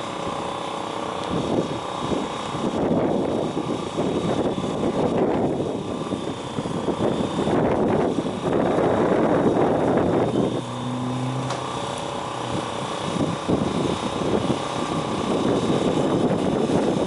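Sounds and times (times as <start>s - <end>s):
classic car engines droning: 9.0s - 14.9s.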